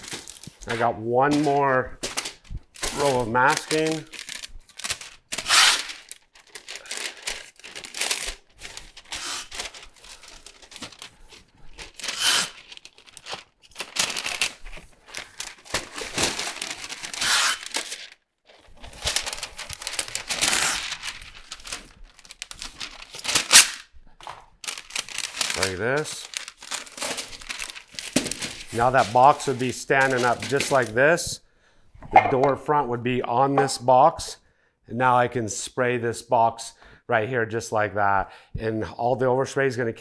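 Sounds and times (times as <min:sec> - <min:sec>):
paper crinkling: 0:00.0 - 0:31.1
masking tape ripping: 0:02.8 - 0:09.8, 0:11.9 - 0:14.6, 0:15.3 - 0:18.1, 0:19.0 - 0:23.9.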